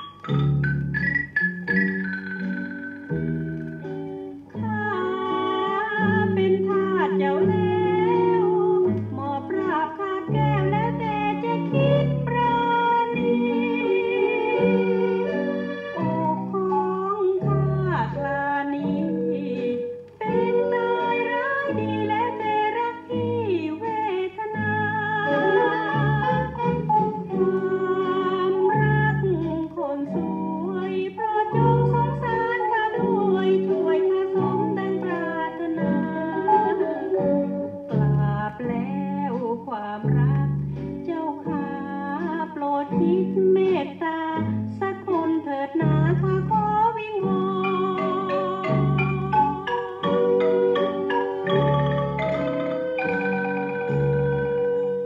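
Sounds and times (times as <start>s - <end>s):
instrumental accompaniment: 0.0s - 55.0s
woman singing: 4.6s - 50.6s
band accompaniment: 47.8s - 54.9s.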